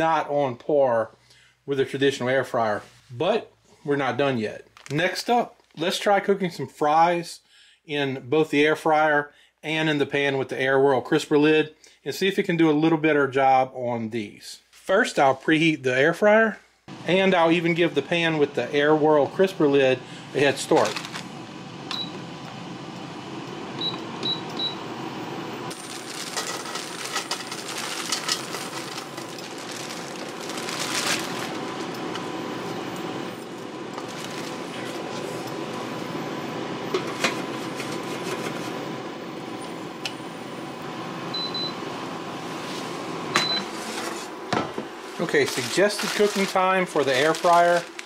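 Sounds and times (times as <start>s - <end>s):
air fryer fan: 16.9s - 48.0s
fries clattering into a pan: 25.8s - 31.4s.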